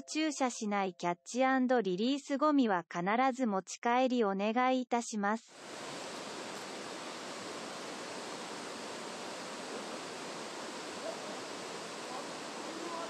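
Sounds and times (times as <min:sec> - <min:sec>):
mountain stream flowing: 0:05.5 - 0:13.0.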